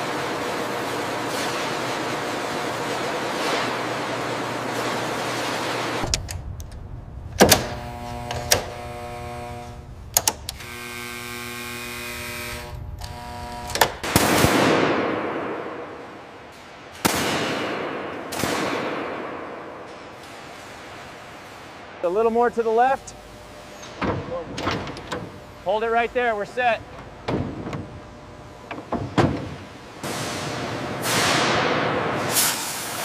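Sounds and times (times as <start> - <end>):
steady humming tone: 0.0 - 17.0, 17.7 - 32.4
sharp clicks: 10.1 - 10.6.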